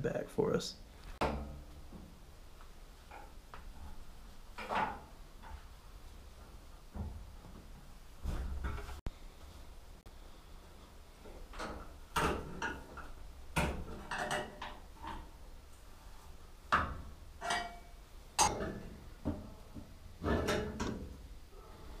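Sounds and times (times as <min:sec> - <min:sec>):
metallic knocks and clanks: 0:03.1 - 0:05.7, 0:11.5 - 0:15.4, 0:16.7 - 0:21.3.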